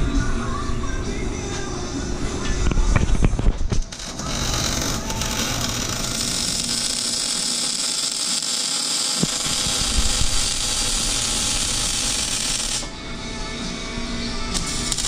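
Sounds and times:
arc welder crackling and hissing: 2.8 - 13.0, 14.3 - 15.0.

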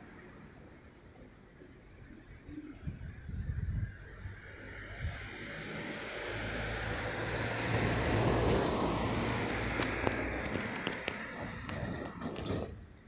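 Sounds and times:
car driving past: 4.4 - 12.4.

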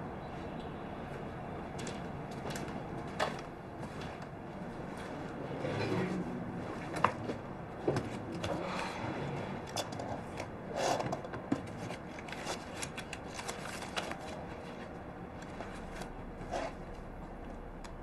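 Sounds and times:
paper and folder rustling: 11.0 - 17.0.

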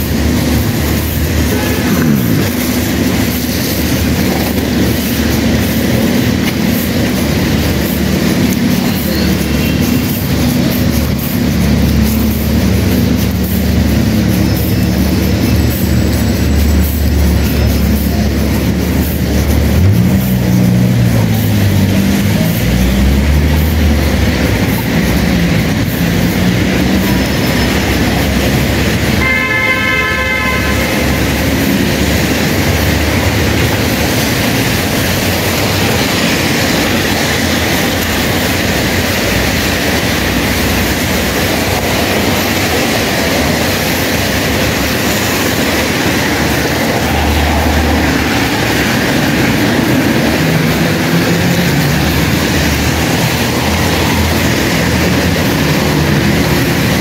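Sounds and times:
car tyres on wet road: 0.0 - 57.0
rain: 0.0 - 57.0
car horn: 28.8 - 32.6.

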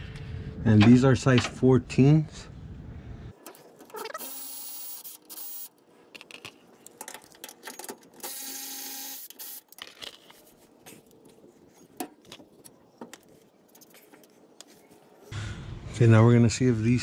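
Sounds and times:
metallic clicks and rattles: 6.2 - 8.2.

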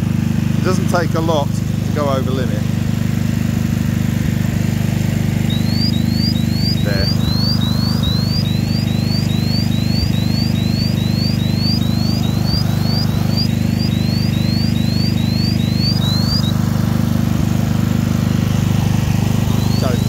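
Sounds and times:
generator engine running: 0.0 - 20.0
gas detector alarm chirping: 5.0 - 20.0.

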